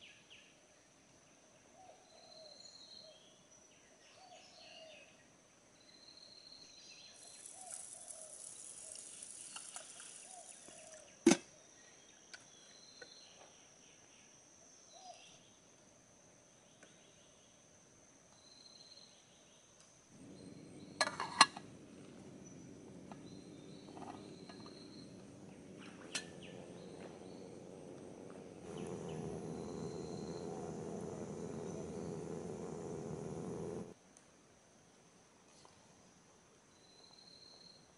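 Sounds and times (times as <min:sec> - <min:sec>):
insects whining: 0:07.0 - 0:11.0, 0:20.1 - 0:34.0
low rushing noise: 0:20.2 - 0:33.9.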